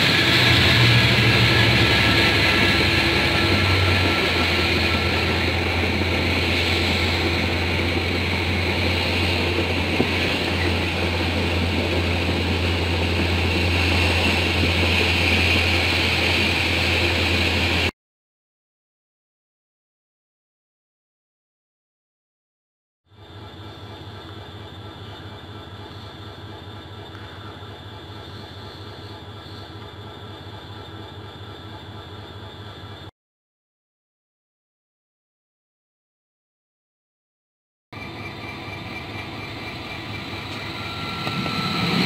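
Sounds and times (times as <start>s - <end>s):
train engine hum: 0.0s - 17.9s, 23.1s - 33.1s, 38.0s - 42.0s.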